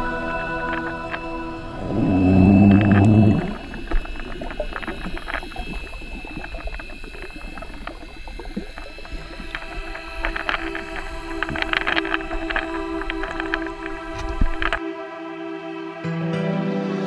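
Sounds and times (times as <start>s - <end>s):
loud low hum: 0.0s - 6.2s
crackling underwater hiss: 0.0s - 14.9s.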